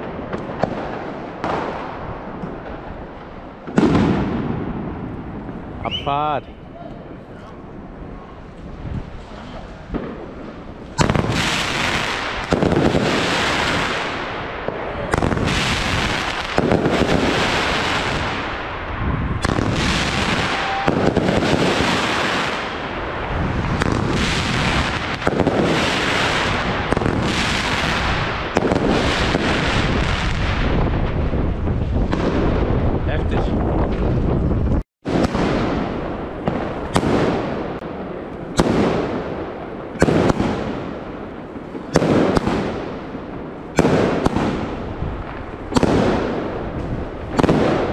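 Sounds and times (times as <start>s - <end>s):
firework shots firing: 0.0s - 5.4s, 9.9s - 33.0s, 35.0s - 47.9s.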